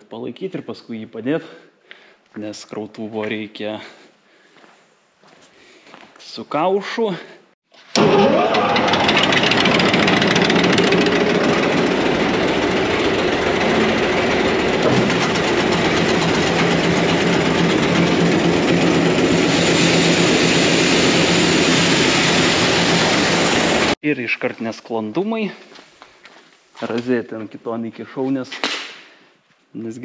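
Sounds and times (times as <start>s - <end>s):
grain auger motor running: 7.9s - 24.0s.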